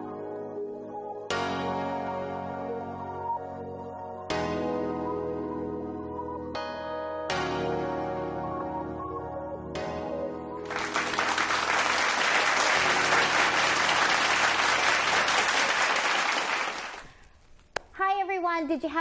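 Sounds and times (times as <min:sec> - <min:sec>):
soft keyboard chords: 0:00.0 - 0:11.9
applause: 0:10.7 - 0:17.3.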